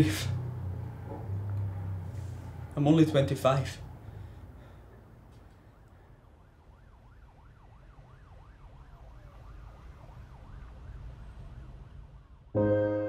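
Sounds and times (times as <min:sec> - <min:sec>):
emergency vehicle siren: 0:04.1 - 0:13.0.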